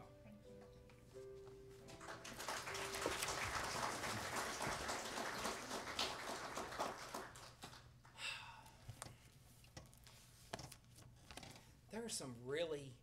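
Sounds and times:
crowd applauding: 0:01.9 - 0:07.9.

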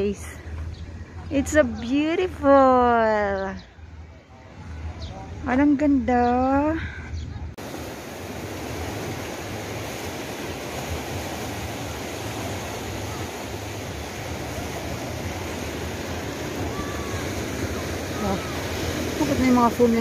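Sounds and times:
sea surf washing among boulders: 0:07.6 - 0:20.0.

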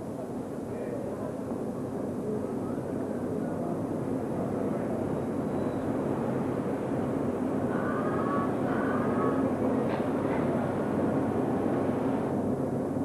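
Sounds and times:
distant road traffic rumble: 0:02.2 - 0:12.5.

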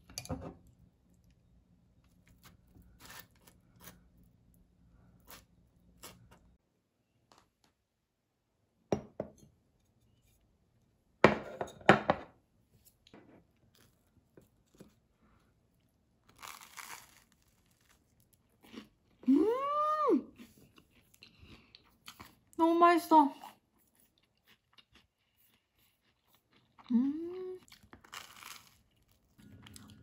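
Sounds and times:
toast crunching: 0:15.8 - 0:19.2, 0:27.6 - 0:30.0
woman saying mmm: 0:19.3 - 0:20.3, 0:26.9 - 0:27.6.

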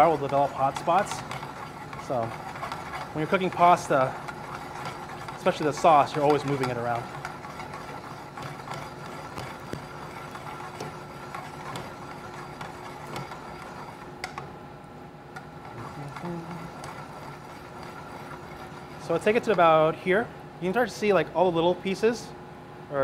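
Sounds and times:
metal tongs scraping pan: 0:00.0 - 0:14.0
steady background hum: 0:00.0 - 0:23.0.

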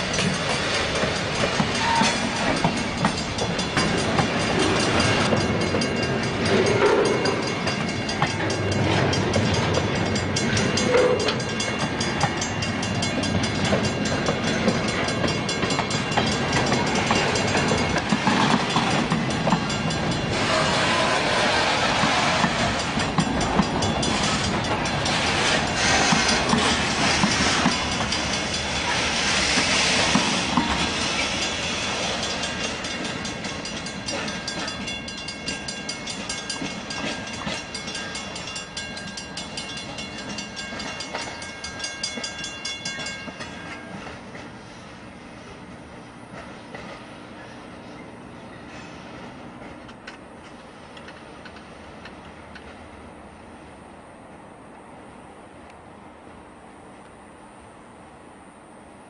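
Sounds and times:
train hissing: 0:00.0 - 0:05.5, 0:16.4 - 0:38.4, 0:48.6 - 0:49.6
wheels clacking on rail joints: 0:00.0 - 0:52.9
train wheels rumbling on rail: 0:00.0 - 0:59.0.

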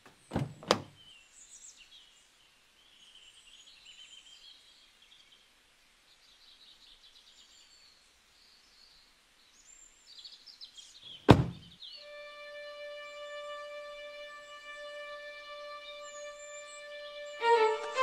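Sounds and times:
car boot lid slamming: 0:00.3 - 0:00.9, 0:11.3 - 0:11.6
birds chirping: 0:14.5 - 0:18.0.

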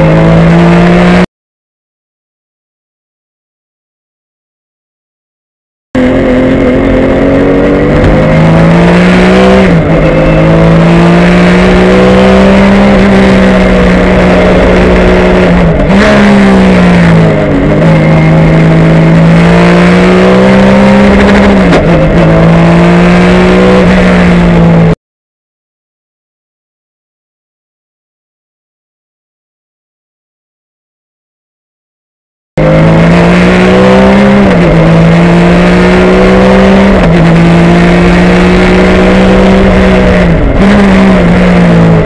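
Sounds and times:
race car engine running hard: 0:06.0 - 0:24.9, 0:32.6 - 0:42.0.

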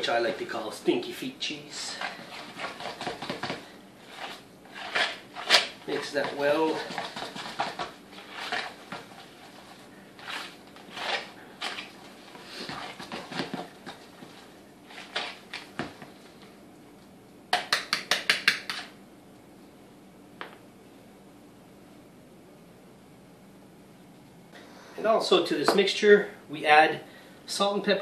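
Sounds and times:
utensil scraping a bowl: 0:01.8 - 0:15.5.

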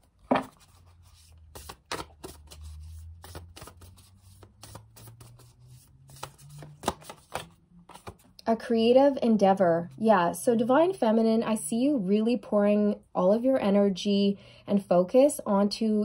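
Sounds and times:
cards being shuffled: 0:00.2 - 0:08.4.

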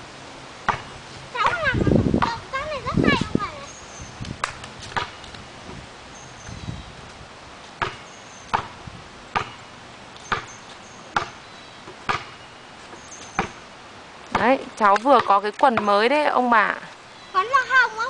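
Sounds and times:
basketball bouncing on concrete: 0:00.7 - 0:02.4, 0:04.8 - 0:05.2, 0:07.8 - 0:11.4, 0:12.0 - 0:12.4, 0:13.2 - 0:13.6, 0:14.3 - 0:16.1.

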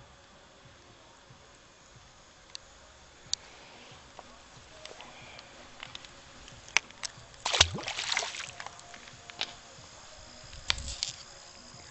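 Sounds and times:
fish splashing into river: 0:07.4 - 0:08.8.

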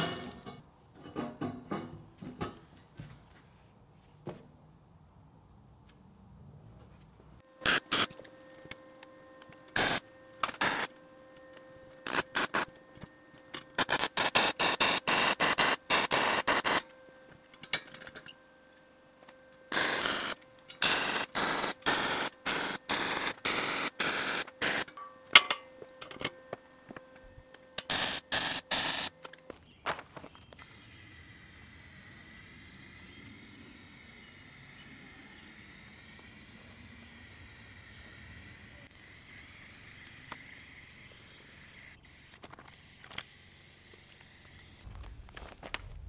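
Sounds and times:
welding arc crackling: 0:07.6 - 0:08.1, 0:09.7 - 0:10.9, 0:12.0 - 0:12.7, 0:13.8 - 0:16.8, 0:19.7 - 0:25.0, 0:27.8 - 0:29.1, 0:30.6 - 0:46.0.

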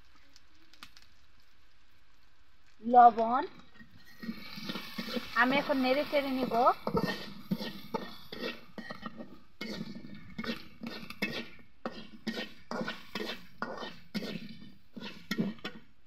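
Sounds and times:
metal spatula scraping a pan: 0:03.7 - 0:15.8.

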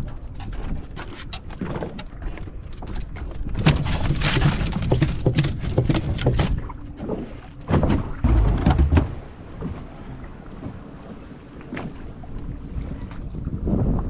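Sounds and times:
water slapping boat hull: 0:00.0 - 0:14.0
short knocks and clatters: 0:07.7 - 0:09.8
wind buffeting microphone: 0:08.0 - 0:14.0.

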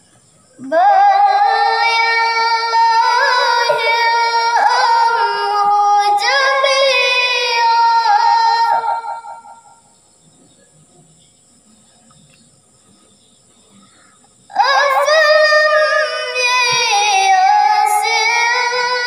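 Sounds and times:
girl chanting into a microphone: 0:00.6 - 0:09.2, 0:14.5 - 0:19.0.

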